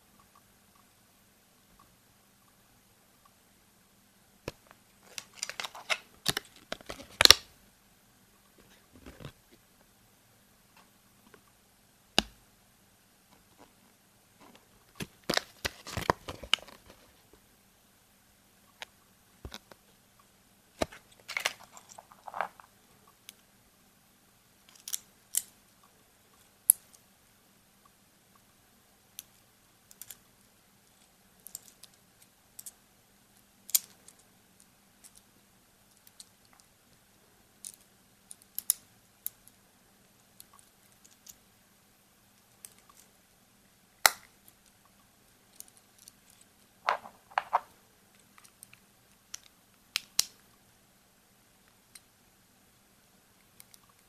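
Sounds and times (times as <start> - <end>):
plastic toy parts clicking: 24.7 - 25.5, 29.9 - 30.2, 37.6 - 39.6.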